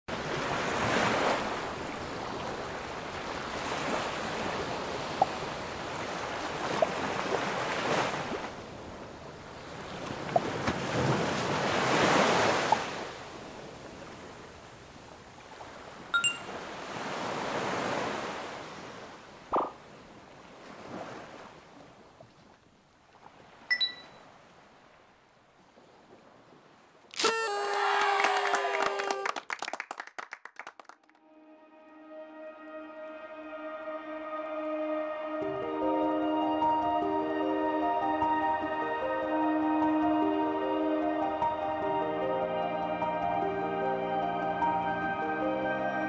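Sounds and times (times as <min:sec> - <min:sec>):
ocean waves washing: 0:00.1 - 0:22.1
short high ringing tones: 0:16.2 - 0:16.5, 0:23.7 - 0:24.2, 0:27.2 - 0:28.4.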